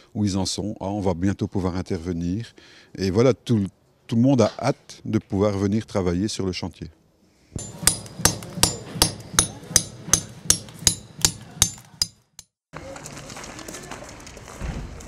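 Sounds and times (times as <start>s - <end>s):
hammer striking with short ring: 7.6s - 12.5s.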